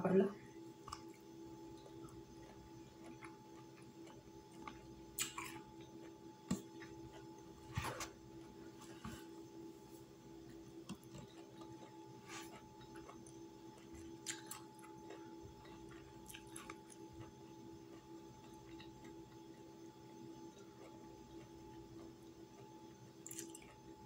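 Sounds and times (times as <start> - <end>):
steady low hum: 0.0 - 24.0
chewing: 0.8 - 8.0, 10.8 - 19.5, 20.6 - 24.0.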